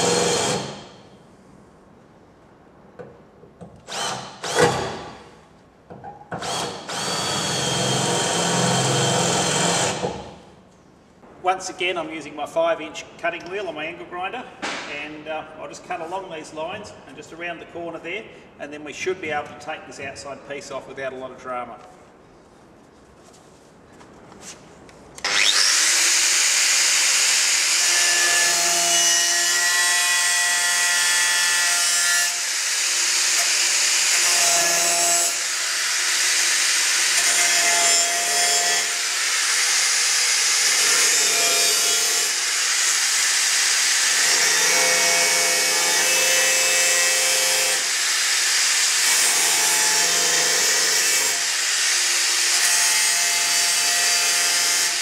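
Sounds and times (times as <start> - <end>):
angle grinder cutting sheet steel: 25.2 - 55.0.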